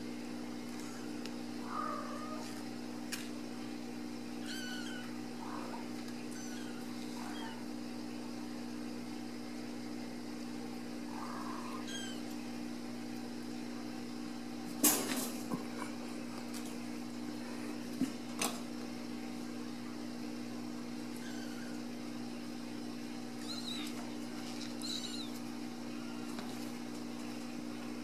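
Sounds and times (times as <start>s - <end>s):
steady low hum: 0.0s - 28.0s
kittens mewing: 0.8s - 2.6s, 4.4s - 7.7s, 11.1s - 12.3s, 21.1s - 21.9s, 23.3s - 26.4s.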